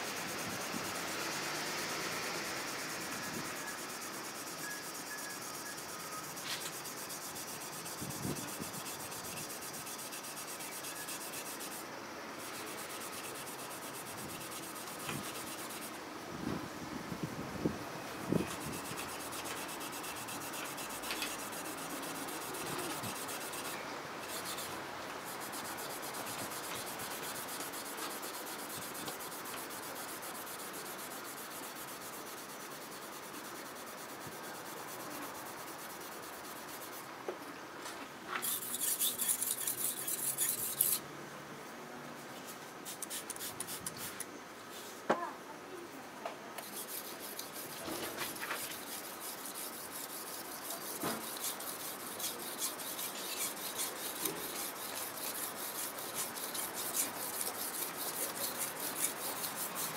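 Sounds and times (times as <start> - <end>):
whetstone scrubbing knife blade: 38.4 - 41.0, 48.6 - 59.9.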